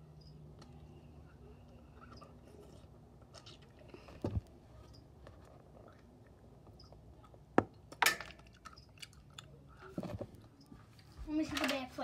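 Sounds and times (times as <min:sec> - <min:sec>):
quiet chewing: 0:00.6 - 0:07.8.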